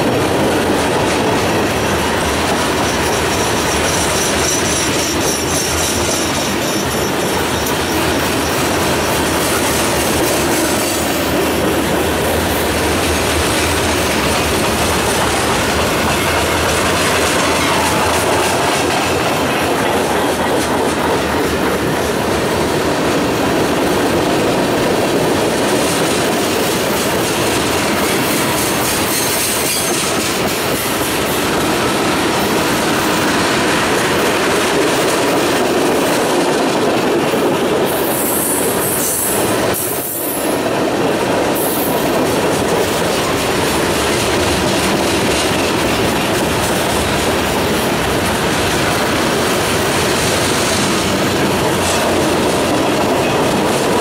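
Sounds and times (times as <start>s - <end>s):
steel wheels on rail: 0.0s - 54.0s
wheel squeal: 2.8s - 9.2s.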